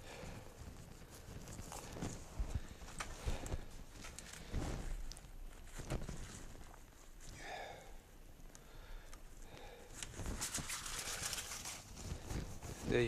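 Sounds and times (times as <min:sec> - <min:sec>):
fabric rustling: 0:00.0 - 0:07.4, 0:10.0 - 0:13.0.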